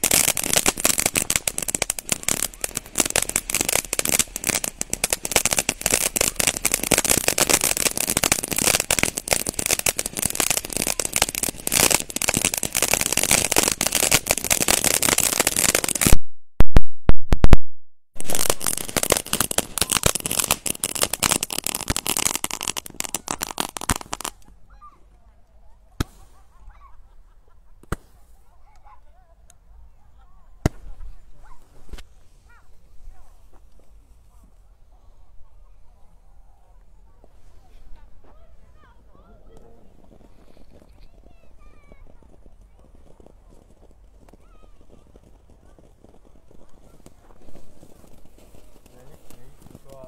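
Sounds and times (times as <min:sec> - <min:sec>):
fireworks crackling: 0:00.0 - 0:17.6, 0:18.2 - 0:24.6, 0:25.9 - 0:26.9, 0:27.8 - 0:28.9, 0:30.5 - 0:34.6, 0:37.2 - 0:50.0
loud firework cracks: 0:00.0 - 0:17.6, 0:18.2 - 0:24.5, 0:26.0 - 0:26.4, 0:27.8 - 0:28.2, 0:30.6 - 0:31.2, 0:39.5 - 0:50.0
sharp pops: 0:00.0 - 0:17.6, 0:18.2 - 0:24.5, 0:26.0 - 0:26.2, 0:27.8 - 0:28.2.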